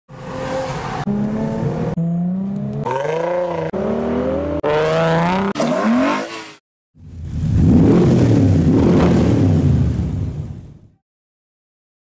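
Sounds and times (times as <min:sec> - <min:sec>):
cars accelerating and revving: 0:00.1 - 0:06.6, 0:07.2 - 0:10.0.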